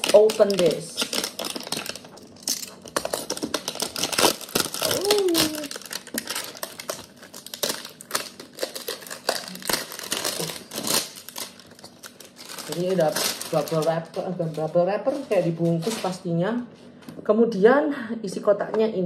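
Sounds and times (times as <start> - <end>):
bubble wrap crinkling: 0.0 - 16.3
person humming: 4.8 - 5.8.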